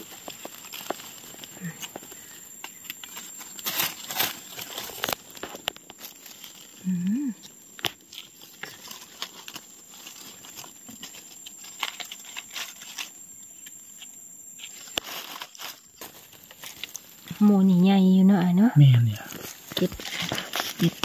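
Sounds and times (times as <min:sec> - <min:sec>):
dry leaves crackling and rustling: 0:00.0 - 0:21.0
person humming: 0:06.8 - 0:07.4.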